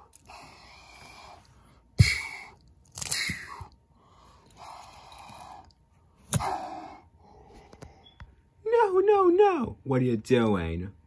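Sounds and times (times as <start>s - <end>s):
person huffing and sighing: 2.0s - 3.8s.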